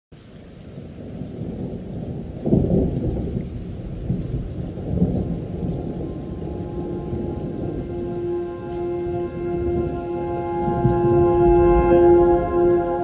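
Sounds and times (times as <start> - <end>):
low rumbling noise: 4.9 - 13.0.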